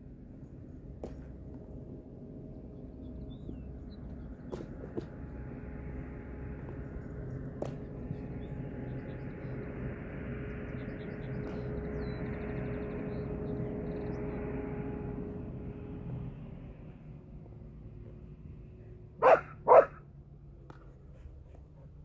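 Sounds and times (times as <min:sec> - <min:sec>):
outdoor background hum: 0:00.0 - 0:22.0.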